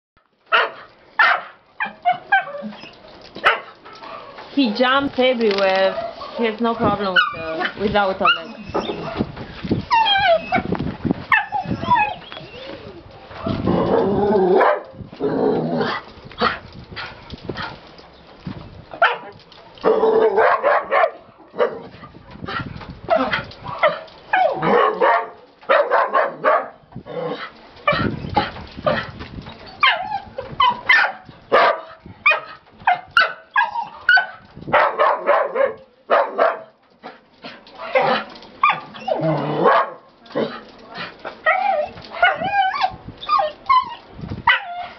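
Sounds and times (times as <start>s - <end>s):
dog barking and yipping: 0.5s - 4.4s, 5.8s - 9.3s, 11.3s - 12.6s, 14.5s - 15.0s, 19.0s - 21.9s, 23.1s - 26.8s, 29.8s - 36.8s, 37.8s - 40.1s, 41.4s - 44.9s.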